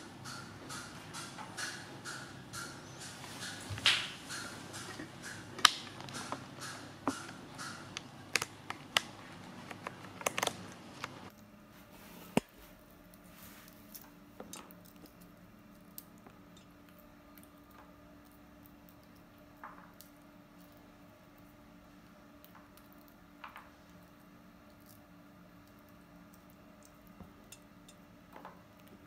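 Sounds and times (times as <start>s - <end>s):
monkey eating with clicks and taps: 0.2s - 11.4s.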